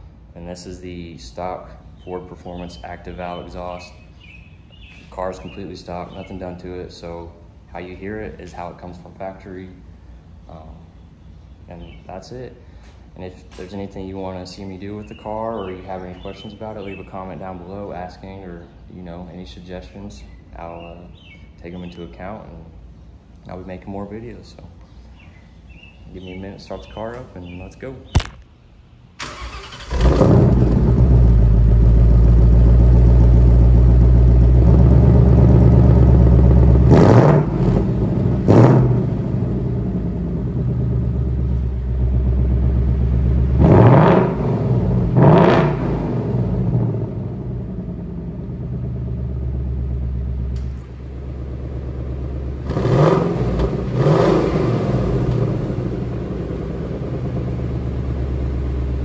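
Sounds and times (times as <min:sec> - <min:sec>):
car engine idling and revving: 0:29.8 - 0:59.0.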